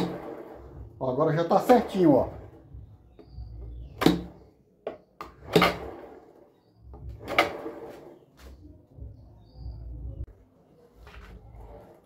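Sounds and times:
wooden knocks and clunks: 2.7s - 5.9s.

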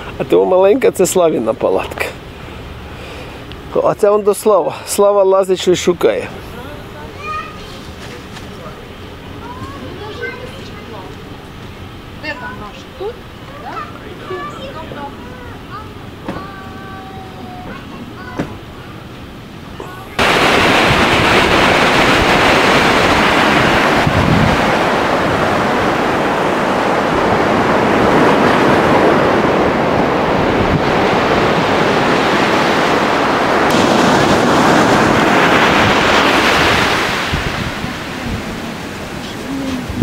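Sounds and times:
ocean surf breaking on beach: 19.8s - 40.0s
wind buffeting microphone: 20.2s - 40.0s.

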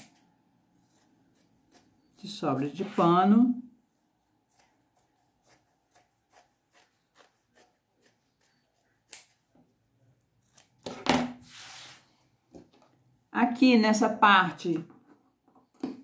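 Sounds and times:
scissors snipping fabric: 4.5s - 9.4s
hand rubbing fabric on a mat: 11.5s - 12.1s.

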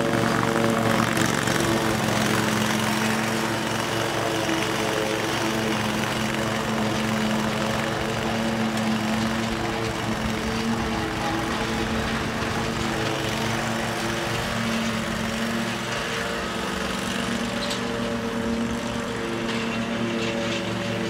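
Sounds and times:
ride-on mower running: 0.0s - 21.0s.

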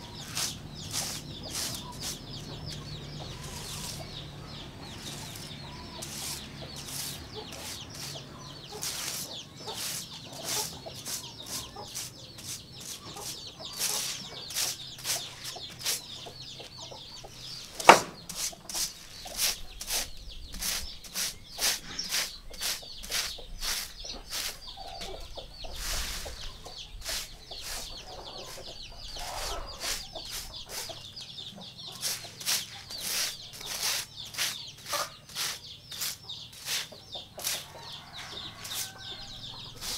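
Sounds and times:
broom sweeping concrete floor: 0.0s - 16.9s, 17.6s - 31.1s, 31.9s - 39.9s
hens clucking: 0.0s - 39.9s
sharp knock: 17.8s - 18.3s.

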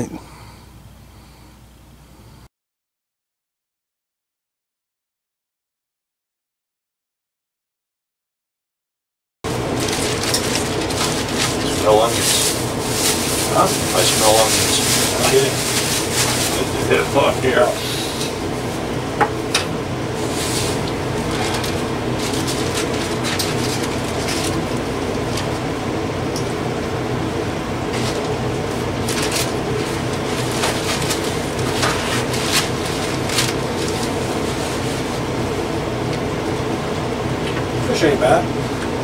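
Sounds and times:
furnace blower humming: 0.0s - 2.5s, 9.5s - 39.0s
food wrappers crinkling: 9.6s - 17.8s, 20.2s - 25.6s, 28.0s - 35.3s.

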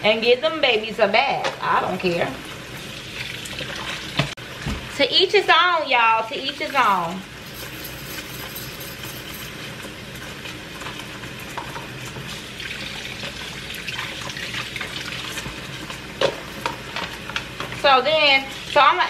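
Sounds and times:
faucet running into sink: 12.3s - 16.7s.

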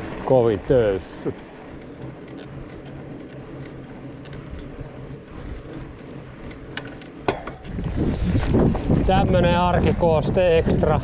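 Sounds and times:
bike rattling: 0.0s - 11.0s
bike tyres rolling on dirt: 0.0s - 11.0s
sharp knocks: 7.2s - 7.7s.

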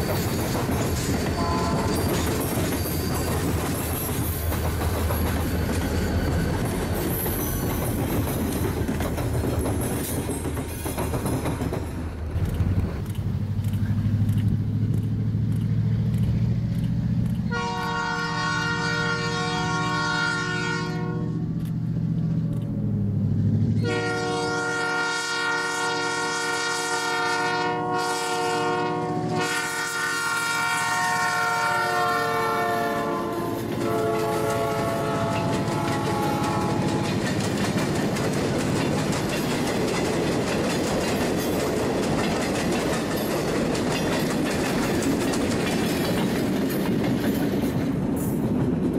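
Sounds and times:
train cars clickety-clack: 0.0s - 25.6s, 26.3s - 48.9s
locomotive air horn blasts: 1.4s - 2.0s, 17.5s - 21.5s, 23.8s - 37.2s
low engine rumble: 12.0s - 17.8s, 21.1s - 23.9s.

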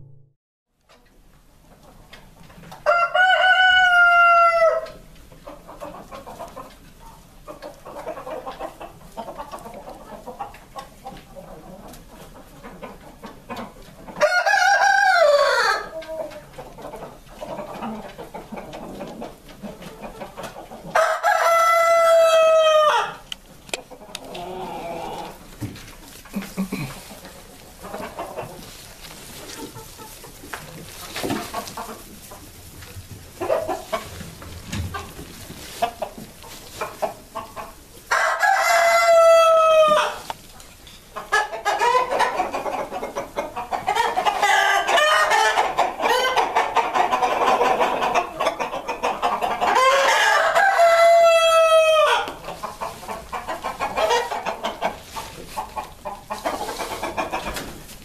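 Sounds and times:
chickens clucking: 0.9s - 58.0s
rooster crowing: 2.8s - 4.9s, 14.2s - 15.9s, 21.0s - 23.2s, 38.1s - 40.2s, 49.8s - 52.3s.

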